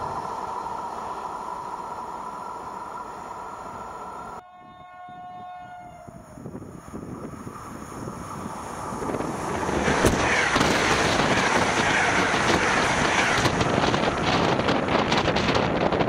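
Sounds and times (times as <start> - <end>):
passenger train passing at speed: 0.0 - 16.0
wind buffeting microphone: 6.1 - 16.0.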